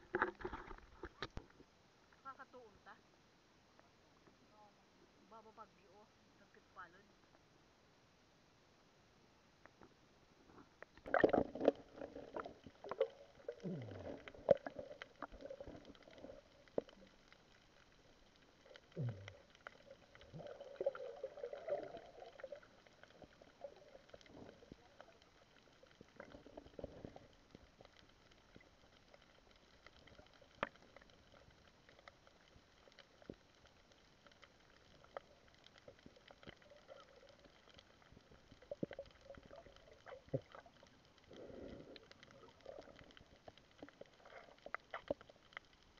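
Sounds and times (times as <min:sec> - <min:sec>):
underwater sloshing and gurgling: 0:00.0 - 0:02.0, 0:09.8 - 0:45.9
bubble glugs: 0:11.0 - 0:17.0, 0:19.0 - 0:24.8.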